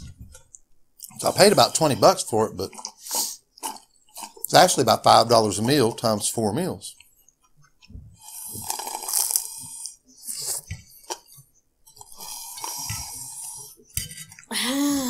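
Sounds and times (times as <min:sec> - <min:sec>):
chewing: 0:02.6 - 0:06.1, 0:06.9 - 0:14.5
slurping through a straw: 0:02.7 - 0:04.8, 0:08.2 - 0:14.5.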